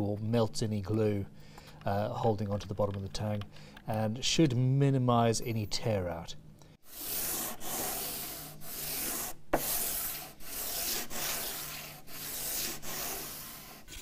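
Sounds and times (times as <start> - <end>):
sanding block rubbing wood: 6.9 - 14.0.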